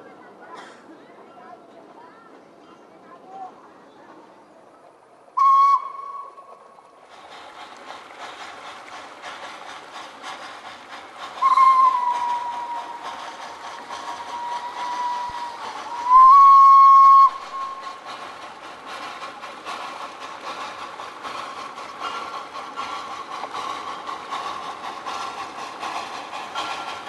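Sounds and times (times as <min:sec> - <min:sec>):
train running noise: 0:00.0 - 0:27.0
steam locomotive whistle blasts: 0:05.4 - 0:06.5, 0:11.4 - 0:13.1, 0:14.3 - 0:17.9.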